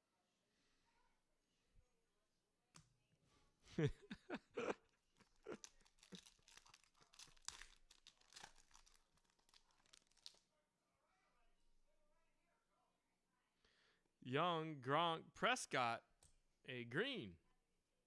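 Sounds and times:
plastic wrapper tearing and crinkling: 5.2 - 10.4.

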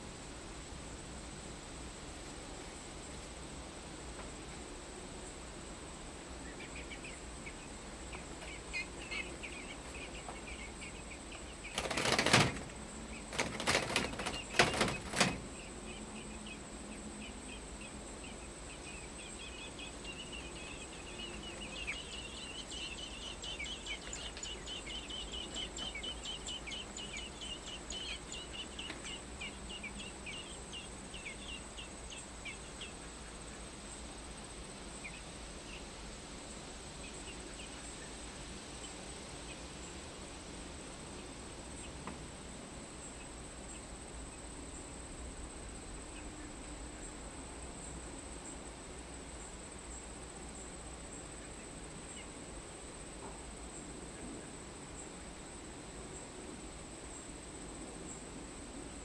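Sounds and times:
faint steady high whine: 0.0 - 59.0
feathers rustling and flapping: 11.6 - 15.7.

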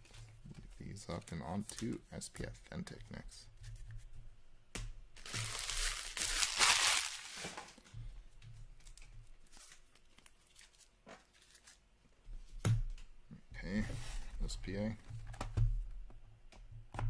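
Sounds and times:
shrink-wrap ripping: 5.2 - 7.7
plastic wrapper crinkling: 5.2 - 7.8.

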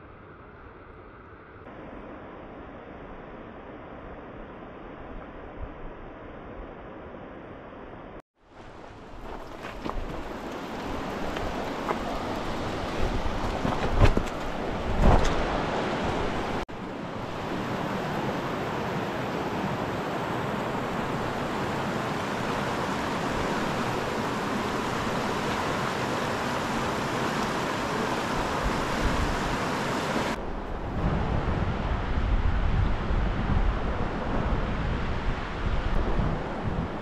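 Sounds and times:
wind gust on microphone: 8.6 - 37.0
river rushing: 8.7 - 30.4.

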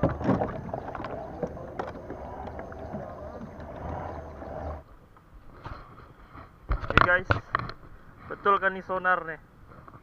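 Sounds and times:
water moving along hull: 0.0 - 7.6.

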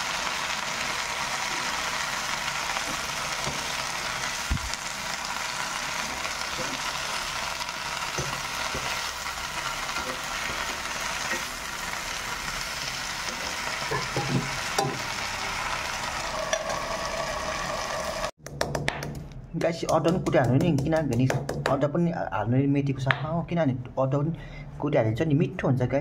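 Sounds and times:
greens sizzling in hot oil: 0.0 - 18.4
ladle scraping and knocking pan: 13.4 - 15.0.

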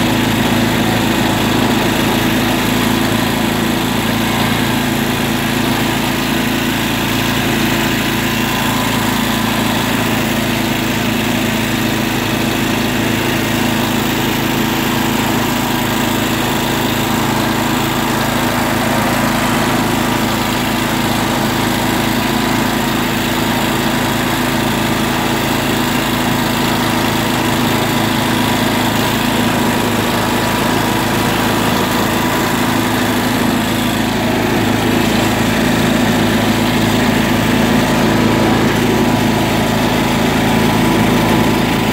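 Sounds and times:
tractor engine droning: 0.0 - 41.9.

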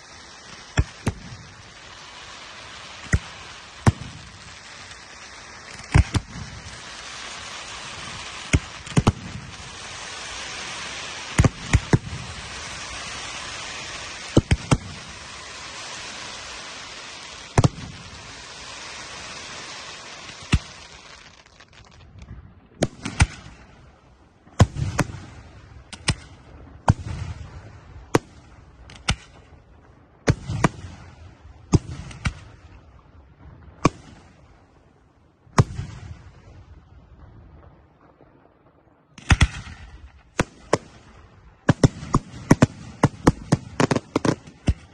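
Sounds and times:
steady hiss: 0.0 - 22.0
fireworks bursting with sharp bangs: 0.0 - 44.9.

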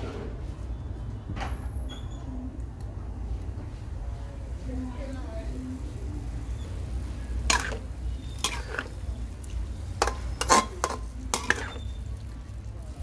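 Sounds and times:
spatula scraping metal wok: 7.3 - 9.2, 9.8 - 12.1.

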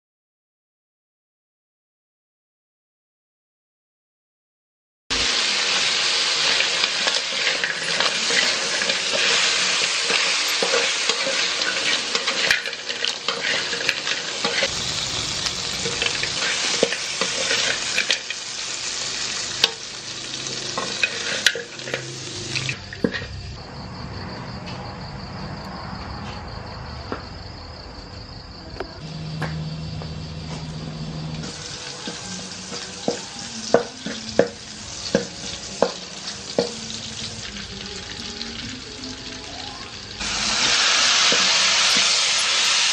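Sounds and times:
garlic frying in oil: 5.1 - 23.5, 29.1 - 42.9
crabs sizzling in a wok: 5.1 - 24.3, 29.0 - 42.9
utensil scraping metal wok: 5.4 - 23.3, 40.2 - 42.9.

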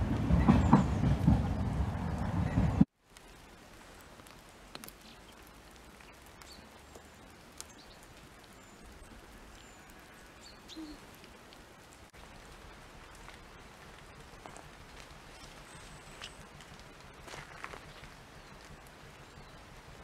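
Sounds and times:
small ticks: 3.1 - 12.0.

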